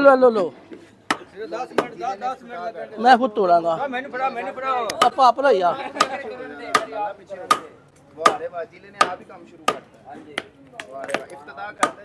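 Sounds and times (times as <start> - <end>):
hammer striking concrete: 6.0 - 12.0.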